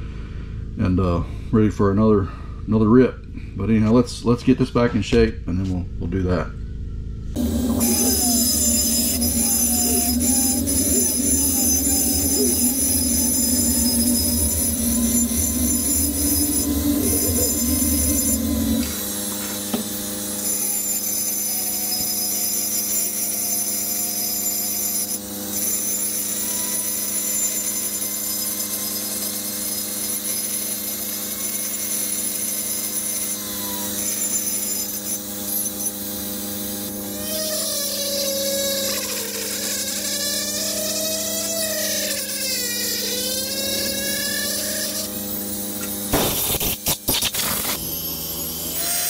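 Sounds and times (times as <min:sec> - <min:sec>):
low rumble: 0:00.0 - 0:18.8
die grinder high whine: 0:07.2 - 0:49.0.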